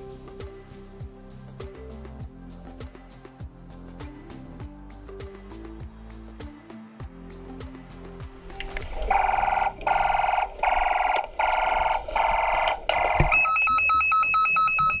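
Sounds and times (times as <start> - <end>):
electronic alarm buzzer: 9.1 - 15.0
rapid two-tone beeping: 9.1 - 15.0.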